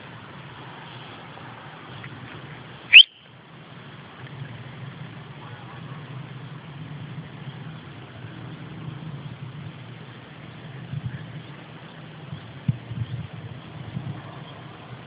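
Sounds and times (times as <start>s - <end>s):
loud rising whistle: 2.9s - 3.2s.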